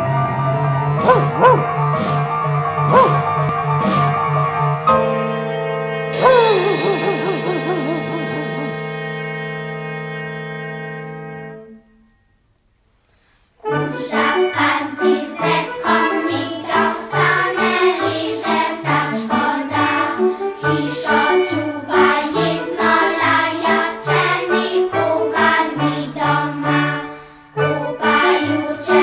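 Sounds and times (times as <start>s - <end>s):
lively song with bouncing bass: 0.0s - 11.5s.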